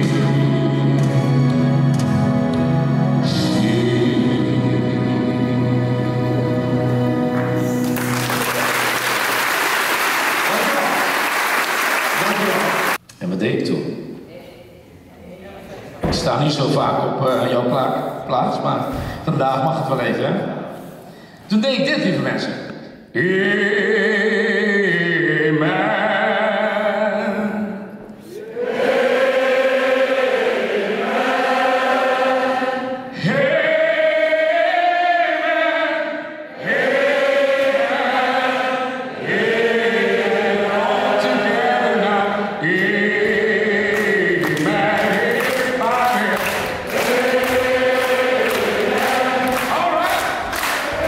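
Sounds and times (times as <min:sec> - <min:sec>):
choir singing: 0:00.0 - 0:11.2, 0:23.2 - 0:51.0
hands clapping a steady beat: 0:07.3 - 0:13.2, 0:42.7 - 0:51.0
man singing into a microphone: 0:23.2 - 0:27.9.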